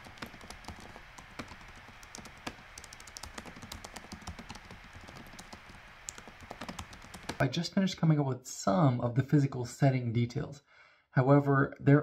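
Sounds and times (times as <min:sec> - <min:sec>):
laptop keyboard typing: 0:00.0 - 0:07.4.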